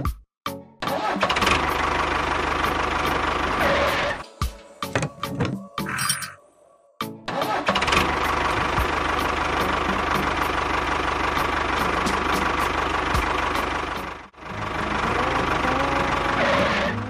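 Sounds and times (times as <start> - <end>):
tractor engine knocking: 1.3 - 3.6, 7.7 - 16.4.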